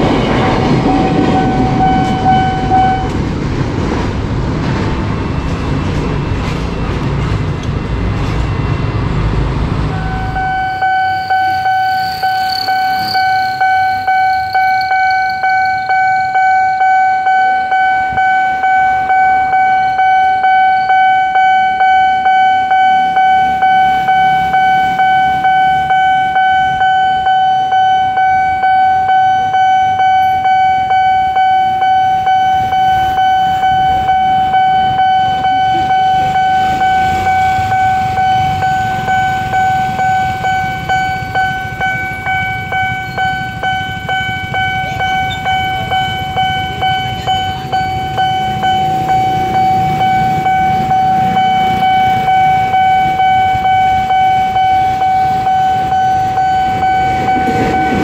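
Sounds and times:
low rumble: 0.0 - 10.6
level crossing bell ringing: 0.8 - 3.2, 9.9 - 58.0.

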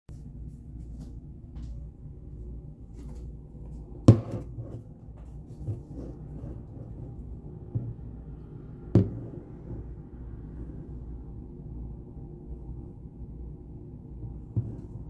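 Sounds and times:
steady low hum: 0.1 - 15.0.

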